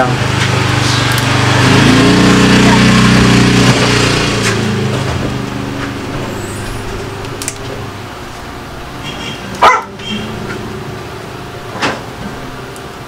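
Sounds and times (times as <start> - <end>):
vehicle engine humming: 0.0 - 13.0
dog barking: 9.6 - 10.0.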